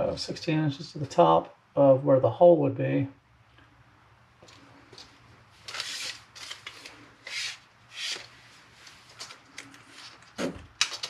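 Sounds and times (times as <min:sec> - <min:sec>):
tape measure scraping drywall: 0:05.6 - 0:08.3.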